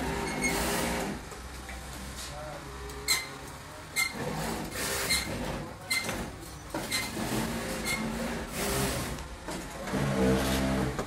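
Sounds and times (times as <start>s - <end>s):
sewing machines stitching: 0.0s - 1.2s, 4.0s - 11.0s.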